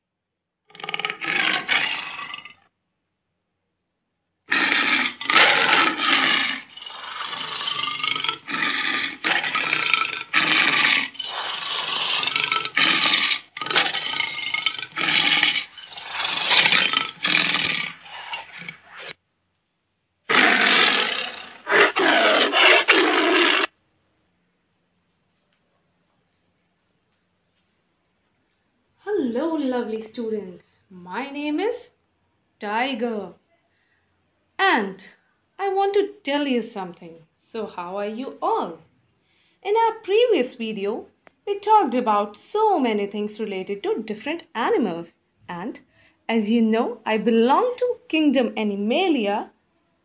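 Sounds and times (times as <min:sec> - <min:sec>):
tiger roaring and growling: 0:00.7 - 0:02.6, 0:04.5 - 0:19.2, 0:20.3 - 0:23.7.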